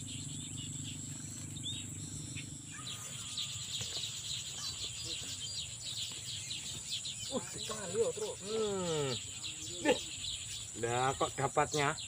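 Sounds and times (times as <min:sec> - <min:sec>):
low hum: 0:00.0 - 0:07.2
birds chirping: 0:00.0 - 0:12.0
insects buzzing: 0:00.0 - 0:12.0.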